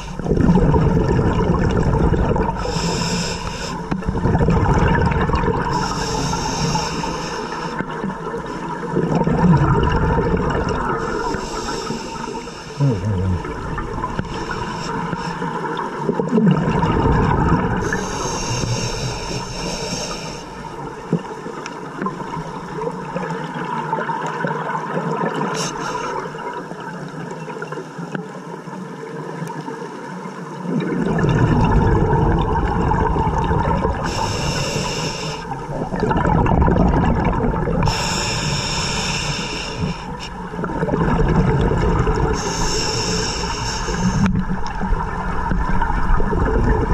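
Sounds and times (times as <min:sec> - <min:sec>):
exhaled bubbles rushing underwater: 0:00.0 - 0:27.8, 0:28.8 - 0:46.9
scuba regulator inhale hiss: 0:02.6 - 0:04.0, 0:05.7 - 0:07.8, 0:11.0 - 0:12.9, 0:14.2 - 0:15.8, 0:17.8 - 0:20.8, 0:25.5 - 0:26.4, 0:34.0 - 0:35.8, 0:37.8 - 0:40.4, 0:42.4 - 0:44.5.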